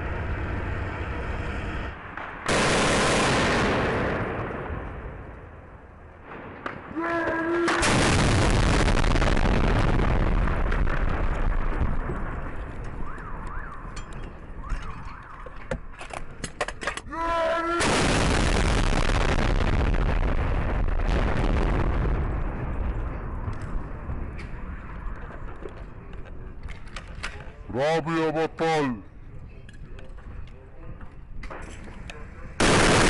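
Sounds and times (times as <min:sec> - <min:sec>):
explosion roar: 0:06.2 - 0:12.7, 0:17.4 - 0:25.0
man shouting: 0:06.9 - 0:07.8, 0:17.1 - 0:17.9.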